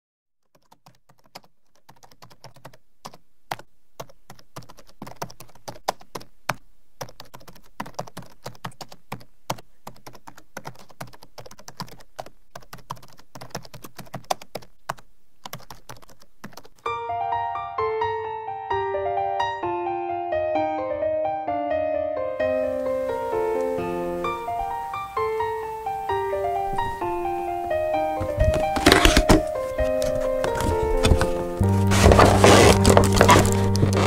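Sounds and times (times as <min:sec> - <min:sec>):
keyboard typing: 0:00.4 - 0:16.8, 0:27.9 - 0:34.0
light piano music: 0:16.8 - 0:34.0.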